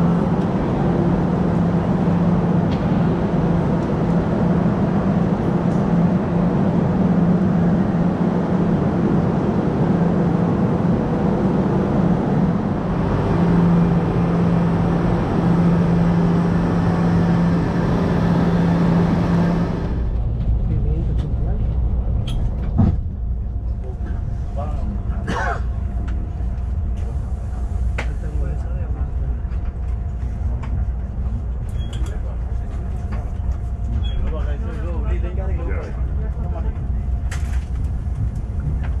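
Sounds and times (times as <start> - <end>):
train humming and rumbling: 0.0 - 39.0.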